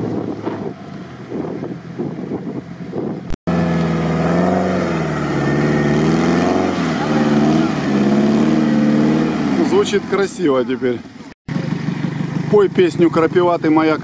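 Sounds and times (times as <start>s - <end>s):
wind buffeting microphone: 0.0s - 3.4s
engine revving under load: 0.0s - 14.0s.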